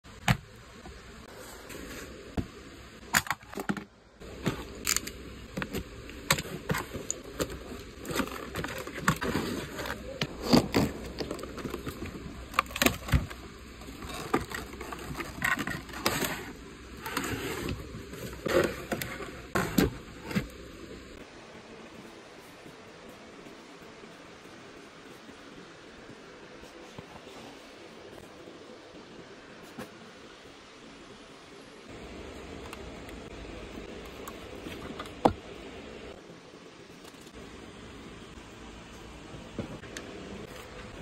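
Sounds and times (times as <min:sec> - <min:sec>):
plastic crackling: 0:03.0 - 0:21.2.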